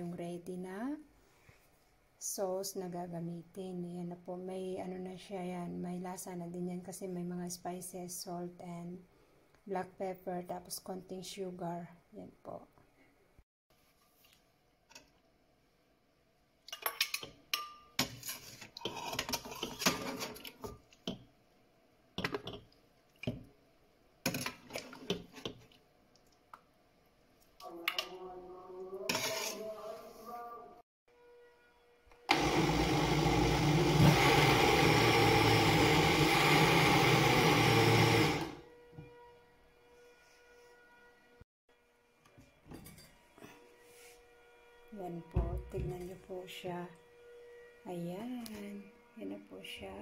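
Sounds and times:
electric blender running: 32.3 - 38.7.

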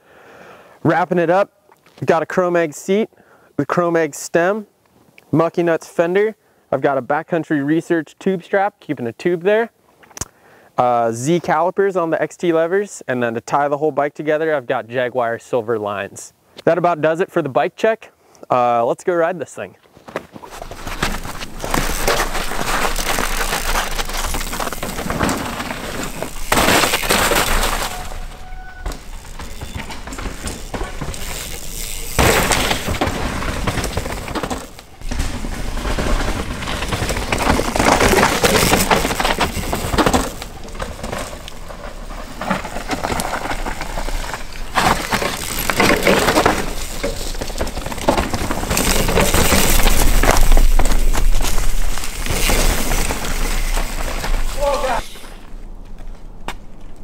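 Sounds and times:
bike tyres crunching over dirt: 19.9 - 57.0.

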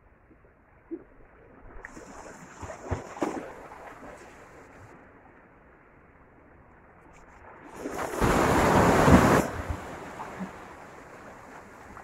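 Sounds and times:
waves splashing on rocks: 7.8 - 12.0.

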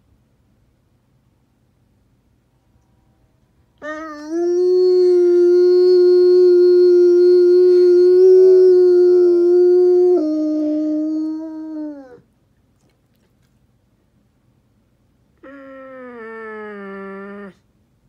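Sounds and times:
dog howling: 3.8 - 12.2, 15.4 - 17.6.

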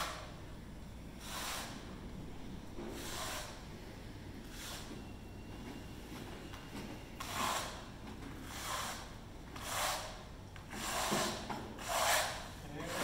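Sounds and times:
trowel scraping adhesive on metal: 3.0 - 3.6, 7.2 - 7.8, 8.4 - 13.0.

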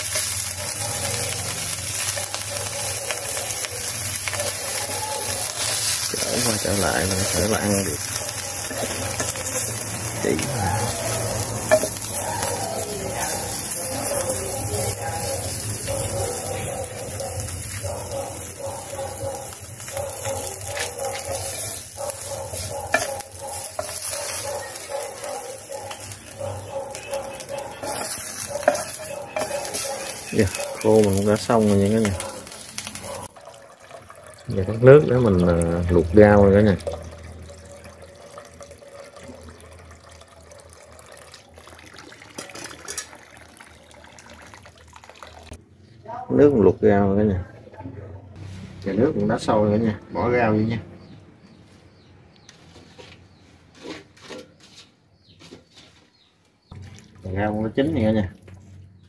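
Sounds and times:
fish sizzling in frying pan: 0.0 - 44.5
tap water filling metal pot: 3.1 - 20.0, 22.7 - 45.6, 56.7 - 58.8
chopsticks clicking against pan: 10.9 - 12.5.

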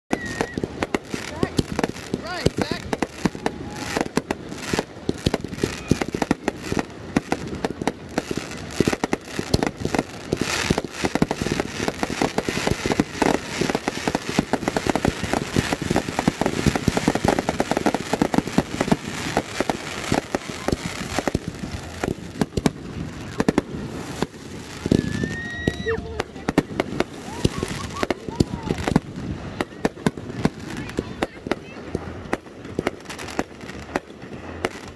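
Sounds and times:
fireworks bangs and crackles: 0.1 - 34.9.

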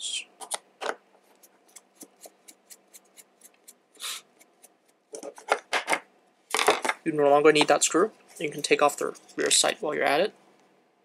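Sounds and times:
short hiss: 4.0 - 4.3.

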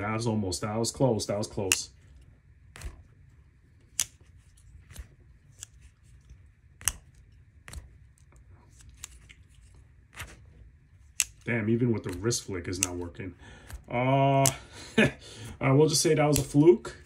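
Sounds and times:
folding knife clicking: 3.9 - 4.2, 11.1 - 11.4, 12.0 - 13.1, 16.3 - 16.6.

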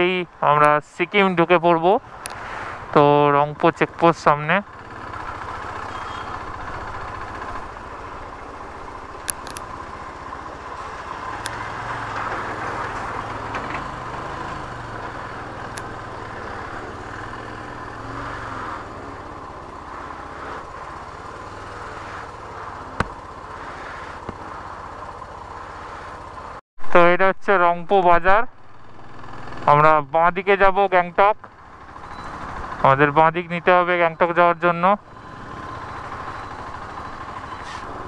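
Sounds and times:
motorcycle engine running: 1.8 - 26.6, 28.5 - 29.8, 30.4 - 38.0
sharp clicks: 9.2 - 9.7, 11.4 - 11.6, 15.7 - 16.0.

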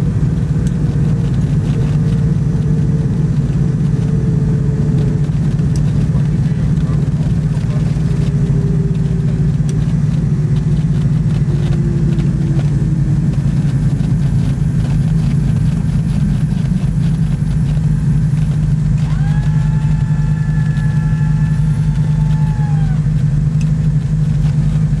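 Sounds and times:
propeller engines droning: 0.0 - 25.0
faint tone sinking in pitch: 2.4 - 23.4
cockpit warning horn: 11.4 - 15.0.

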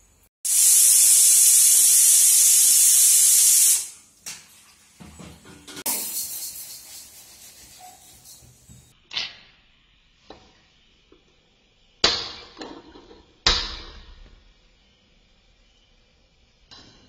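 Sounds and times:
kitchen utensils clanking: 5.0 - 8.9.

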